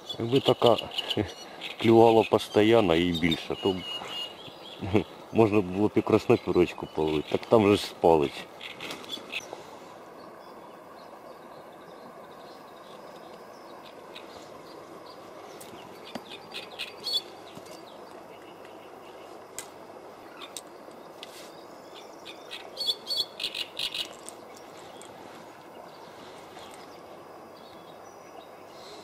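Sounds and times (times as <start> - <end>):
steady outdoor hiss: 0.0 - 29.0
small bird chirping: 21.9 - 25.2.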